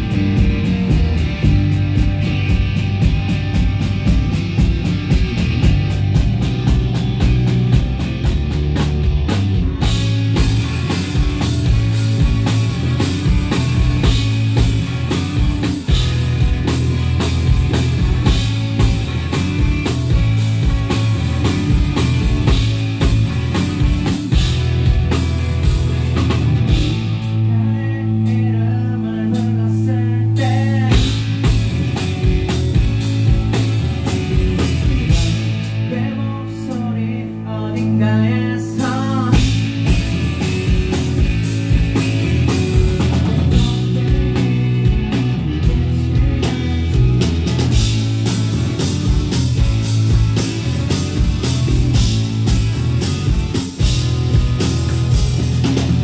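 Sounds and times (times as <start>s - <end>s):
drum kit: 0.0s - 37.0s, 37.7s - 56.0s
electric guitars: 0.0s - 56.0s
man singing: 27.3s - 31.5s, 34.5s - 40.0s, 43.2s - 47.2s.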